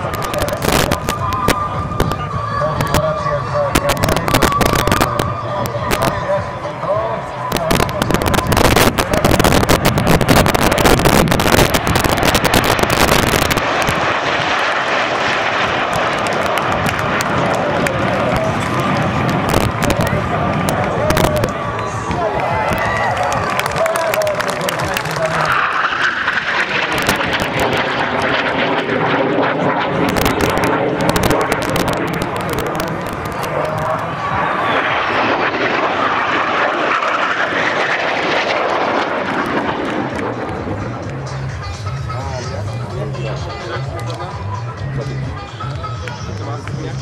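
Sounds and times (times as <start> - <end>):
dense crackling: 0.0 - 2.2, 3.7 - 5.2, 7.5 - 21.7, 22.6 - 41.7
jet fighters roaring overhead: 0.0 - 47.0.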